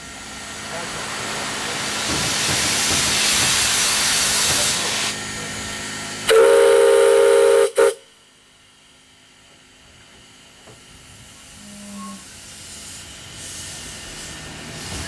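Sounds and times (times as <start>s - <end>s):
steam locomotive hissing: 0.0s - 8.0s, 11.0s - 15.0s
steam whistle blast: 6.3s - 8.1s.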